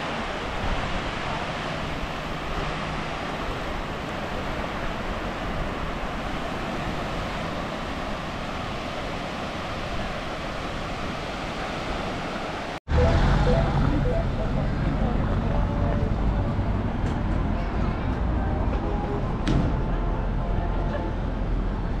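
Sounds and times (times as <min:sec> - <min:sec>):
small waves washing up a beach: 0:00.0 - 0:16.0.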